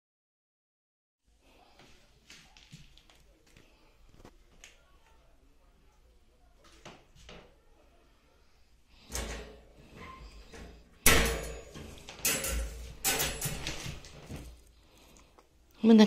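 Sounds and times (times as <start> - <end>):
sharp metal clank: 11.0 - 13.9
metal crate door rattling: 11.1 - 14.1.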